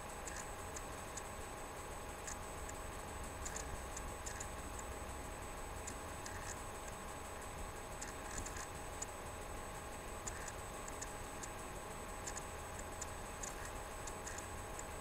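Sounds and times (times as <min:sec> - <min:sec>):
electrical hum: 0:00.0 - 0:15.0.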